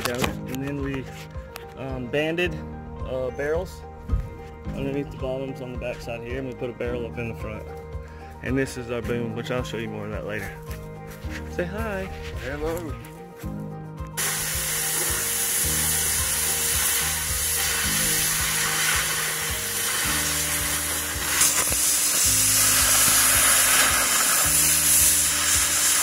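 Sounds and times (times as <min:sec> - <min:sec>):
background music: 0:00.0 - 0:26.0
cutting torch hissing: 0:14.2 - 0:26.0.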